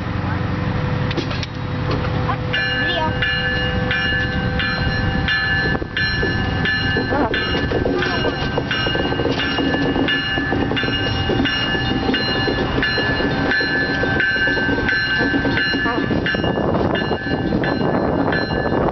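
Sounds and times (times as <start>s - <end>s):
diesel engine rumble: 0.0s - 18.9s
locomotive bell ringing: 1.7s - 18.9s.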